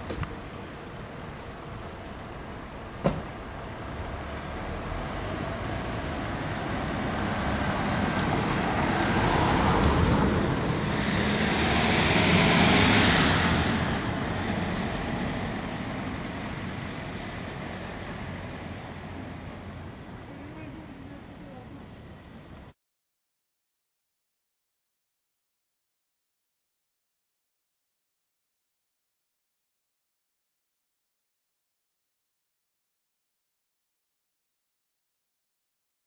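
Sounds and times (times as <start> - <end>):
road vehicle driving past: 0.0 - 22.5.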